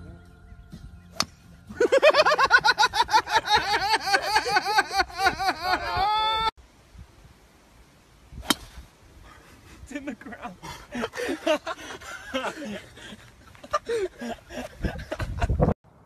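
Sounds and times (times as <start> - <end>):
person laughing in high shrieks: 3.4 - 6.5
long held cry: 4.1 - 6.5.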